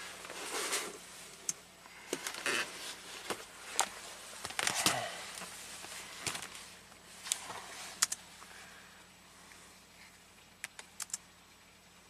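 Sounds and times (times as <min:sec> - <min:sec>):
sharp equipment clicks: 0:10.6 - 0:11.2.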